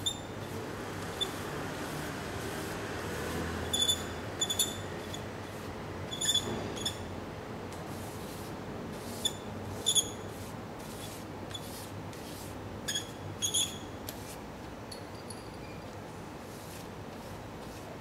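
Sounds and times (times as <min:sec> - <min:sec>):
drawing stick rubbing on paper: 0:07.9 - 0:12.5.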